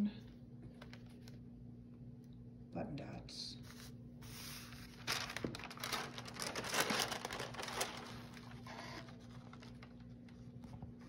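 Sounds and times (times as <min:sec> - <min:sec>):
paper and fabric rustling: 0:03.6 - 0:11.0.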